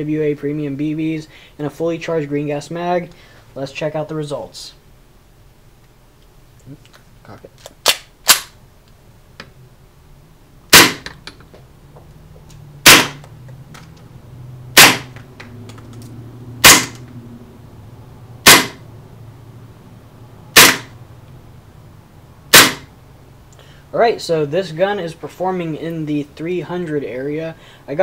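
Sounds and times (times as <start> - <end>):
airsoft gun shots: 7.8 - 8.6, 10.7 - 11.1, 12.8 - 13.2, 14.8 - 15.2, 16.6 - 17.0, 18.4 - 18.8, 20.5 - 21.0, 22.5 - 22.9.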